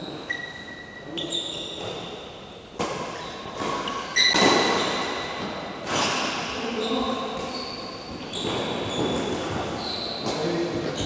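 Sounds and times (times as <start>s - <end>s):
racket striking shuttlecock: 2.8s - 5.2s.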